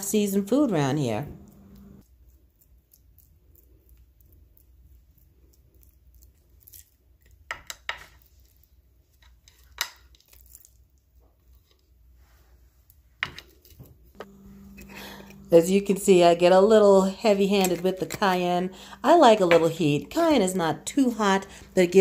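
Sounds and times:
low steady hum: 0:00.0 - 0:02.0, 0:14.1 - 0:22.0.

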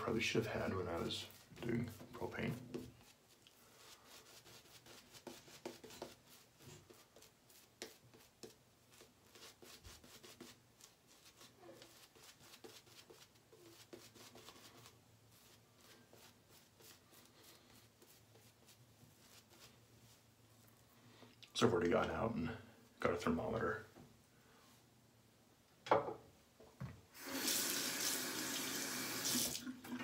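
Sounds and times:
shaving brush swishing through lather: 0:00.0 - 0:20.3.

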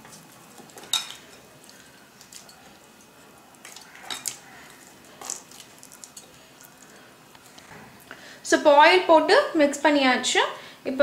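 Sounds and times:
dough squelching: 0:00.0 - 0:07.6.

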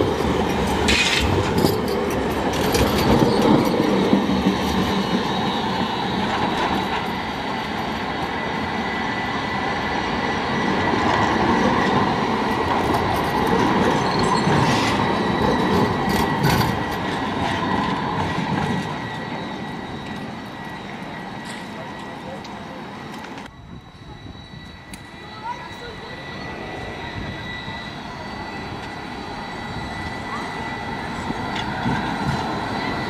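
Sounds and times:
wheels clacking over rail joints: 0:00.0 - 0:05.2
tram wheels running on rail: 0:00.0 - 0:33.0
thin high whine: 0:18.7 - 0:33.0.

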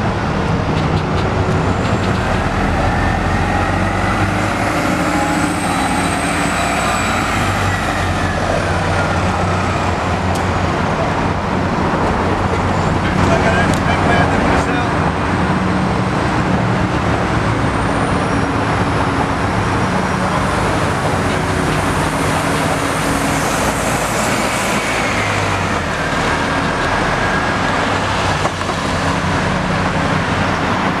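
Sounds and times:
bus driving past: 0:00.0 - 0:31.0
road traffic: 0:00.0 - 0:31.0.

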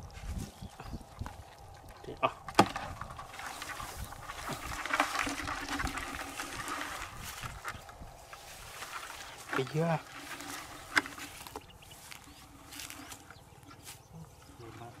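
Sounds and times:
handling and rustling: 0:02.4 - 0:15.0
sharp knock on plastic bucket: 0:02.5 - 0:03.0.

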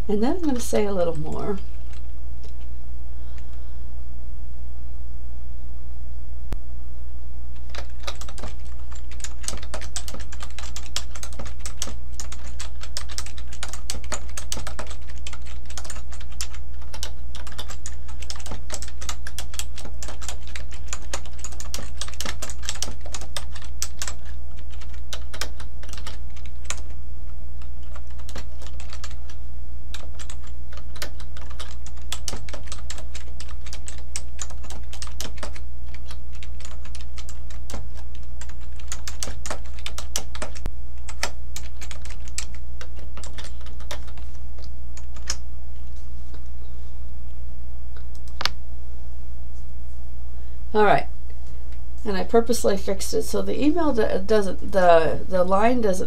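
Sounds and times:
steady low hum: 0:00.0 - 0:56.0
typing on keyboard: 0:07.6 - 0:27.0, 0:27.6 - 0:45.4.

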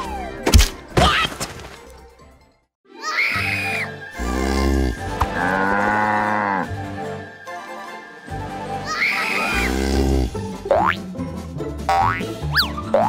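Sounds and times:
cartoon music with long held notes: 0:02.9 - 0:13.0.

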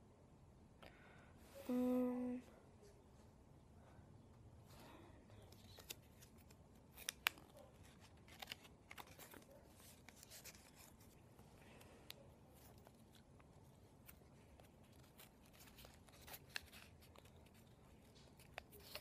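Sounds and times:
paper crinkling as folded: 0:05.5 - 0:11.3, 0:12.5 - 0:19.0.

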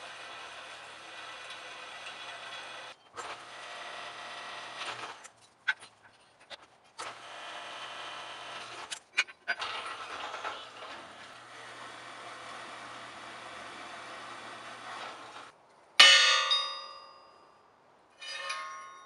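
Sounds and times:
drill press cutting steel: 0:00.0 - 0:05.3, 0:09.6 - 0:15.5.

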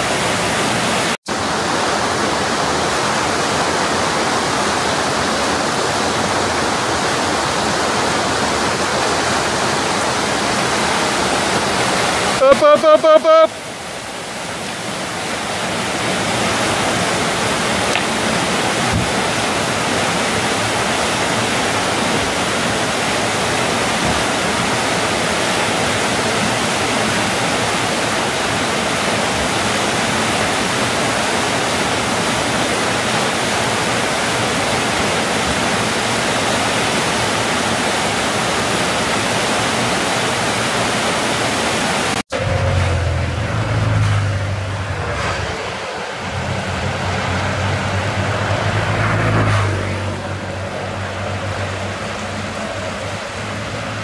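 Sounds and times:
whitewater rapids rushing: 0:00.0 - 0:54.0
low rumble: 0:42.3 - 0:53.7.

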